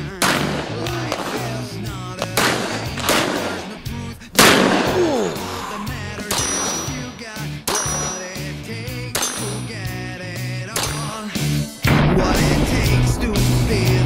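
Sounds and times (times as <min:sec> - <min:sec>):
revolver gunshots: 0:00.0 - 0:08.5, 0:09.1 - 0:09.7, 0:10.7 - 0:11.2
background music with bass line: 0:00.0 - 0:14.0.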